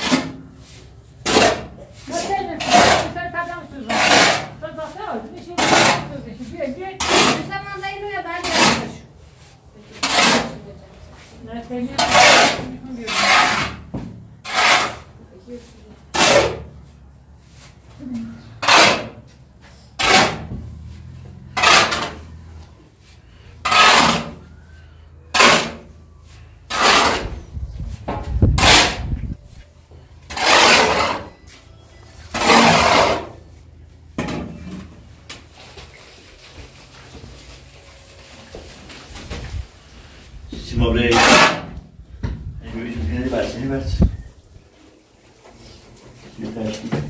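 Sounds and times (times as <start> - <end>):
shovel scraping concrete floor: 0.0 - 41.9
powder loaded into metal wheelbarrow: 30.3 - 33.5.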